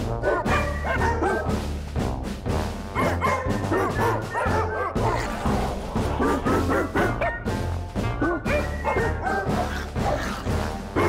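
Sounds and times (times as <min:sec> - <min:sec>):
music with low bass notes: 0:00.0 - 0:11.0
dog barking: 0:00.2 - 0:01.6, 0:03.0 - 0:07.6, 0:08.2 - 0:10.5.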